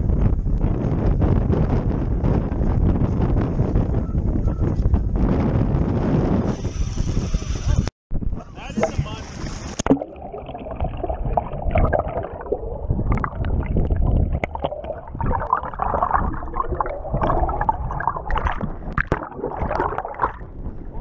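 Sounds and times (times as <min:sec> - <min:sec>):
bubbles streaming: 0:08.6 - 0:21.0
underwater gurgling water: 0:08.7 - 0:21.0.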